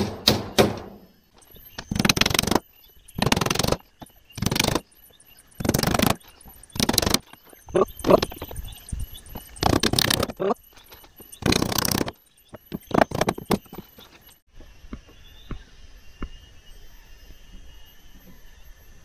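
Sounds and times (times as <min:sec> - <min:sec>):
boards scraping and knocking: 0:01.6 - 0:02.6, 0:05.6 - 0:06.2, 0:06.8 - 0:08.6, 0:09.4 - 0:14.3.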